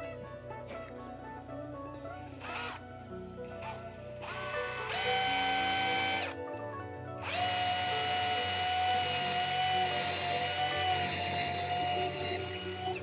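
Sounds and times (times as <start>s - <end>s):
background music: 0.0s - 13.0s
power drill boring into wood: 2.4s - 2.8s, 3.6s - 6.4s, 7.2s - 13.0s.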